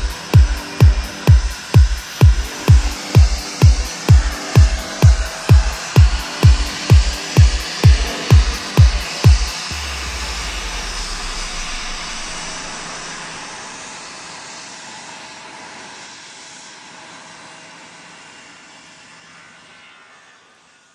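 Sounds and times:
deep bass beat: 0:00.0 - 0:13.8
jet engine rushing: 0:00.0 - 0:14.6.

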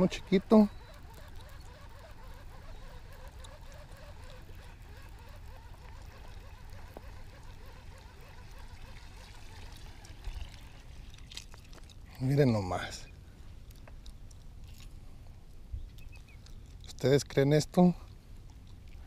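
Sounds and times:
water trickling: 0:03.2 - 0:12.6.

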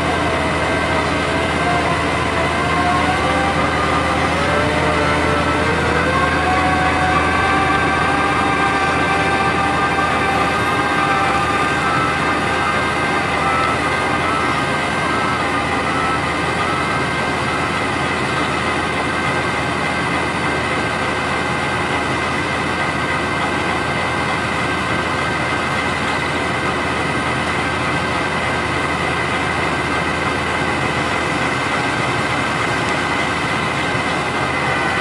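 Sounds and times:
high machine whine: 0:00.0 - 0:35.0
wood shredder running: 0:00.0 - 0:35.0.

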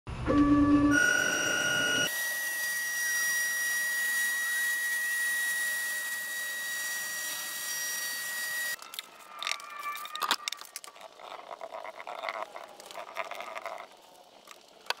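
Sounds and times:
router spindle motor whining: 0:00.9 - 0:08.8.

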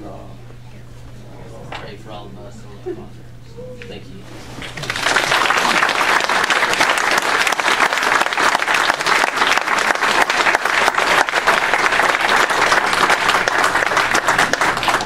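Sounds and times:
audience applauding: 0:04.5 - 0:15.0.

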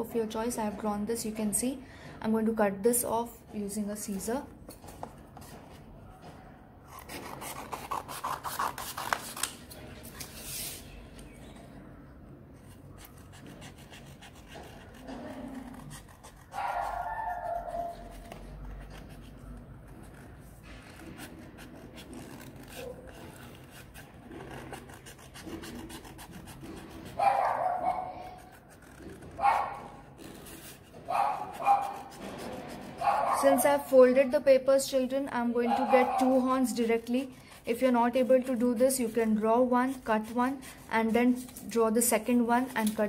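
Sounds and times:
scissors cutting paper: 0:06.9 - 0:10.8, 0:12.6 - 0:33.7, 0:35.9 - 0:43.0.

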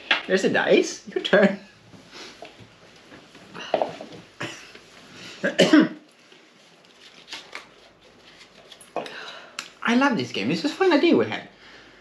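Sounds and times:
person coughing: 0:04.4 - 0:04.8, 0:05.4 - 0:06.0.

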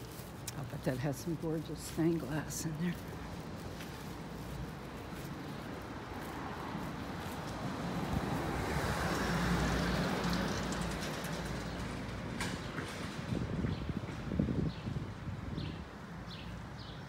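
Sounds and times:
car passing by: 0:06.1 - 0:13.5.

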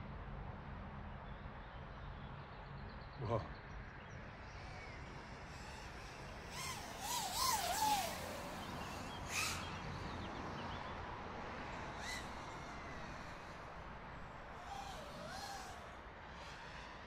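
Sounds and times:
quadcopter motors whining: 0:04.6 - 0:17.0.

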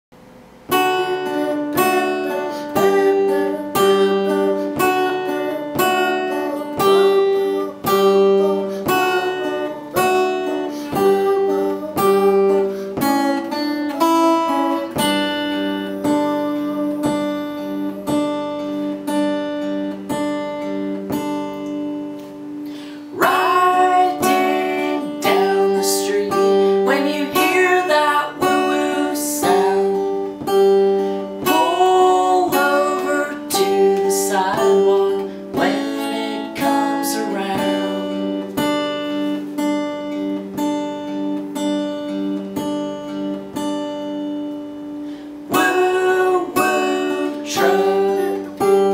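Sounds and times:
acoustic guitar strumming: 0:00.2 - 0:48.9
man singing: 0:00.8 - 0:19.1, 0:23.0 - 0:38.7, 0:45.5 - 0:48.9.

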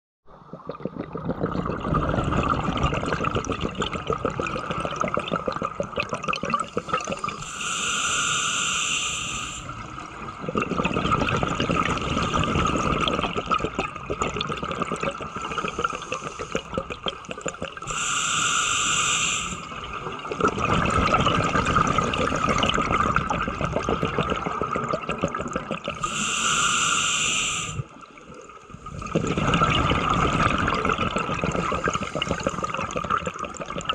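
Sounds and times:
exhaled bubbles crackling underwater: 0:00.3 - 0:07.6, 0:09.2 - 0:26.7, 0:27.4 - 0:33.9
regulator inhalation hiss: 0:06.7 - 0:09.8, 0:15.3 - 0:16.7, 0:17.8 - 0:19.8, 0:26.0 - 0:27.9, 0:31.6 - 0:32.8.

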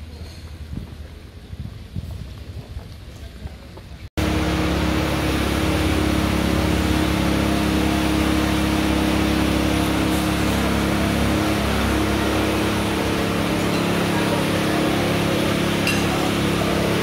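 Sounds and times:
machine drone: 0:04.2 - 0:17.0.

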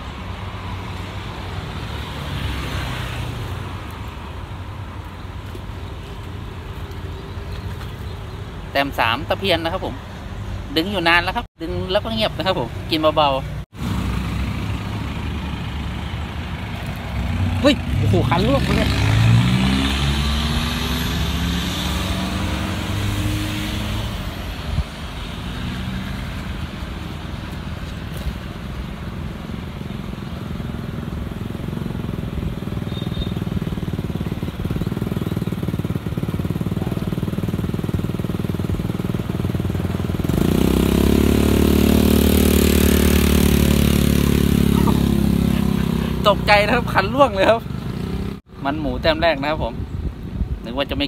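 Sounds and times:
steady traffic hum: 0:00.0 - 0:51.0
engine passing by: 0:00.7 - 0:03.8, 0:13.2 - 0:28.6, 0:29.5 - 0:49.0
loud engine running: 0:33.8 - 0:48.3.

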